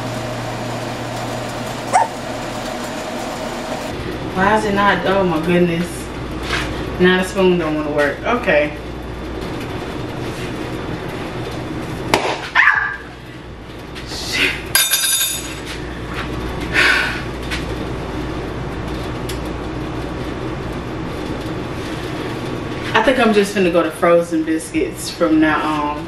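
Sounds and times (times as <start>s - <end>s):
ringing metallic clink: 14.8s - 15.6s.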